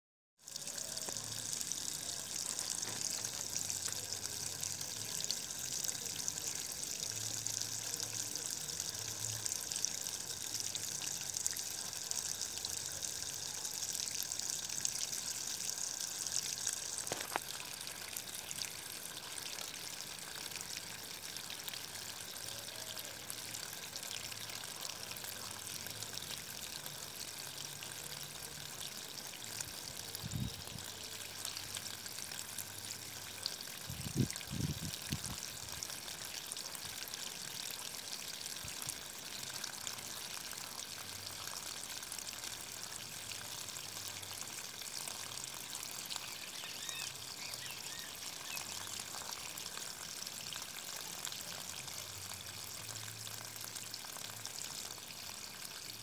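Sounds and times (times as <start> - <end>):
water splashing onto stones: 0.6 - 27.3.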